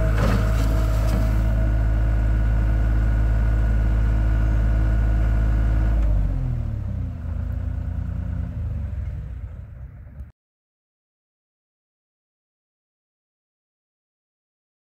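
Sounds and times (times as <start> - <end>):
diesel engine revving down to idle: 0.0 - 10.3.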